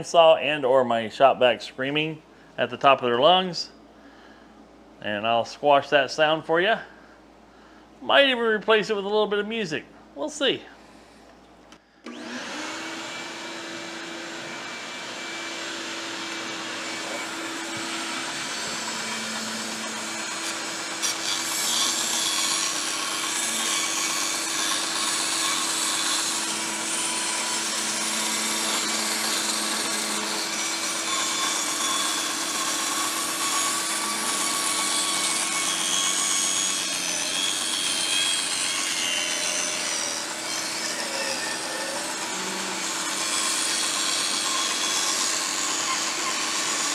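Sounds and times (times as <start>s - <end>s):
shop vacuum running: 11.8s - 46.9s
band saw running: 12.1s - 46.9s
saw blade cutting plywood: 12.1s - 46.9s.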